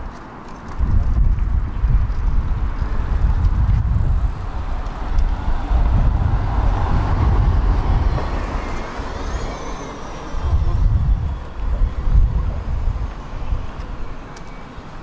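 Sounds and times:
road traffic rumble: 0:00.0 - 0:15.0
vehicle passing: 0:02.3 - 0:13.6.

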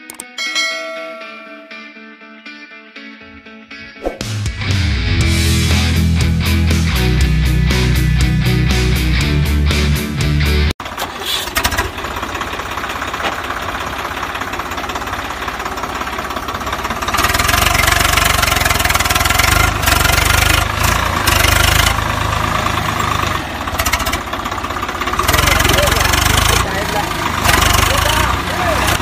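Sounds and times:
music: 0:01.5 - 0:10.8
tractor engine knocking idle: 0:10.8 - 0:29.0.

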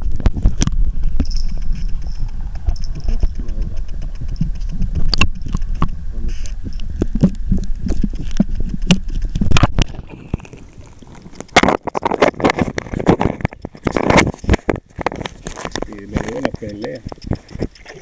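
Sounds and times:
muffled underwater rumble: 0:00.0 - 0:18.0
water clicks and knocks on camera: 0:00.0 - 0:18.0
quiet hiss: 0:00.2 - 0:11.7.

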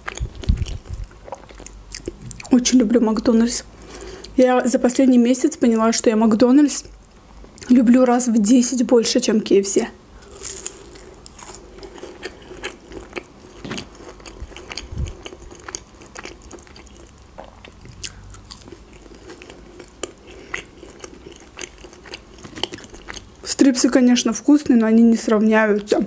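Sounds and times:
chewing crispy fried chicken: 0:10.2 - 0:23.5.

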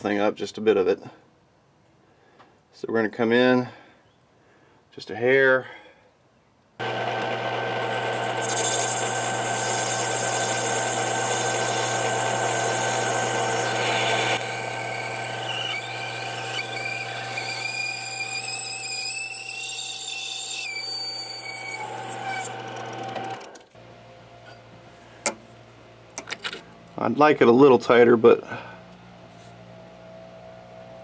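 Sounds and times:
lathe motor humming: 0:06.8 - 0:18.8
high squeal: 0:08.0 - 0:23.0.

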